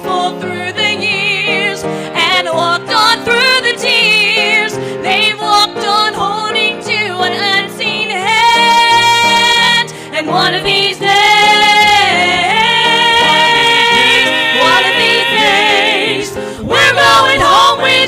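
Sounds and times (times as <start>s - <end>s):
steady instrumental chords: 11.1s - 18.0s
lead instrument sliding melody: 11.5s - 18.0s.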